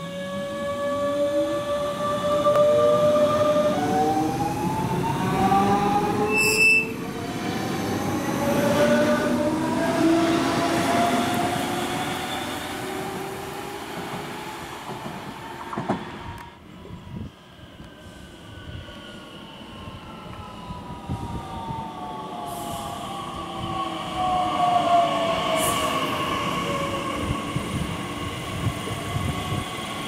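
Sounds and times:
train wheels rumbling on rail: 1.4 - 17.0
high-pitched train horn toot: 6.2 - 7.0.

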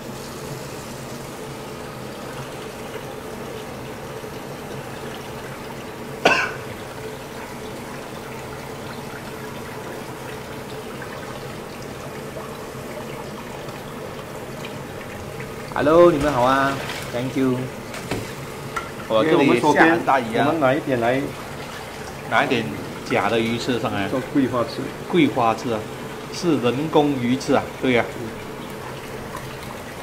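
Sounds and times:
tap water splashing through strainer: 8.3 - 19.1.

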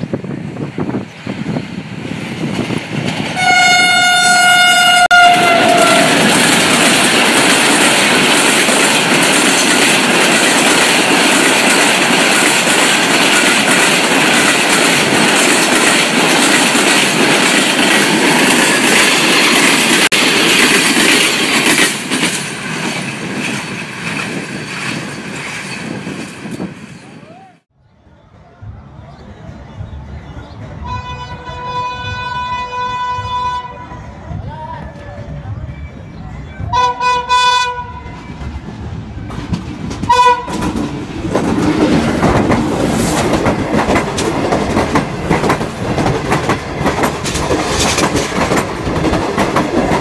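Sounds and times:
train coaches rushing past: 0.0 - 50.0
locomotive horn: 3.4 - 6.3, 30.8 - 34.1, 36.7 - 38.3, 40.1 - 40.7
wheels clattering over rail joints: 39.2 - 50.0.

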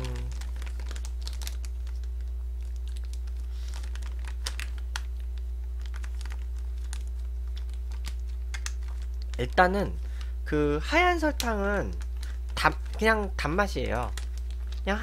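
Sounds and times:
low electrical hum: 0.0 - 15.0
plastic bag crinkling: 0.0 - 15.0.

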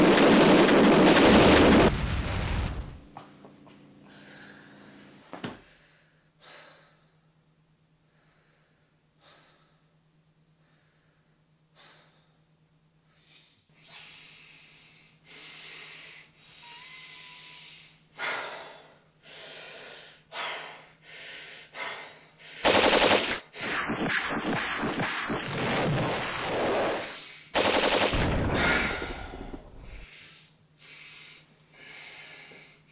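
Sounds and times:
sudden loud burst: 0.0 - 3.1, 22.8 - 27.1, 28.1 - 30.0
man breathing heavily: 4.0 - 7.3, 8.0 - 22.7, 28.5 - 32.9.

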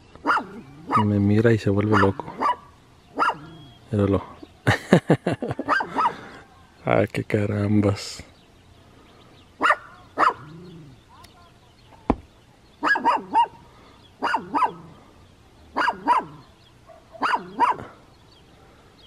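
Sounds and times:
small dog barking: 0.2 - 1.1, 1.9 - 3.6, 5.6 - 6.7, 9.6 - 10.6, 12.8 - 13.6, 14.2 - 14.9, 15.7 - 17.9.

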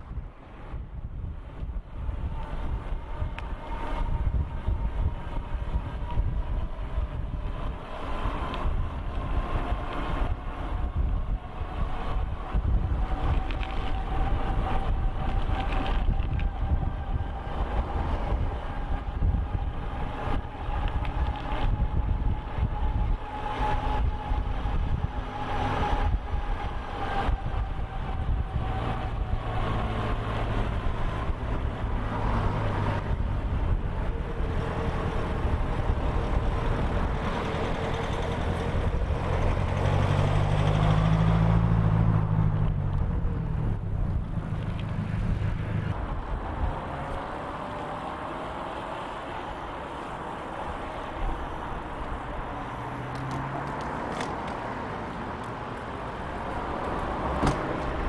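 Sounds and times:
wind rumble on microphone: 0.0 - 58.0
bicycle tyre noise: 0.1 - 40.9
electric hub motor whine: 0.8 - 40.5.

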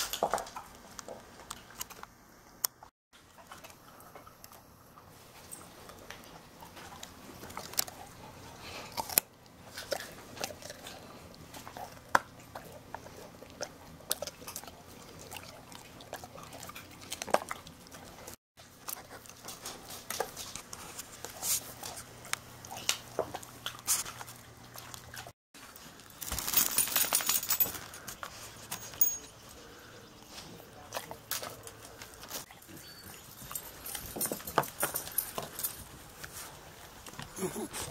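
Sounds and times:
dog crunching carrot: 5.6 - 27.2, 30.4 - 37.9.

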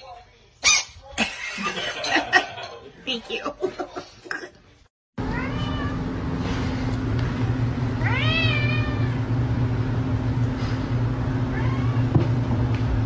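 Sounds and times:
cat meowing: 5.3 - 6.0, 8.0 - 9.3, 11.5 - 12.1.

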